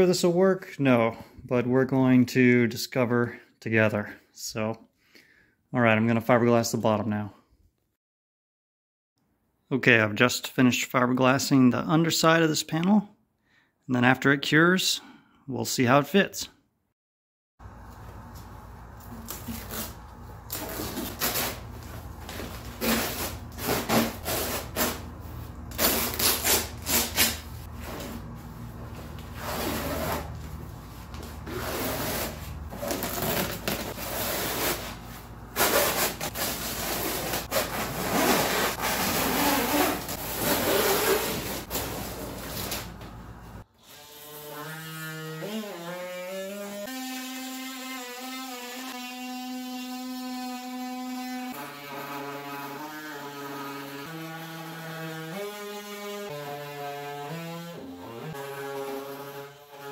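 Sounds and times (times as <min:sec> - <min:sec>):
plastic sheeting rustling: 0:25.8 - 0:43.0.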